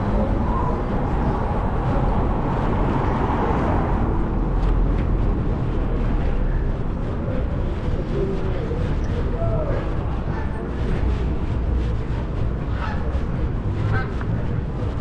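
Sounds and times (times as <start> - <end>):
passing car traffic: 0.0 - 8.8.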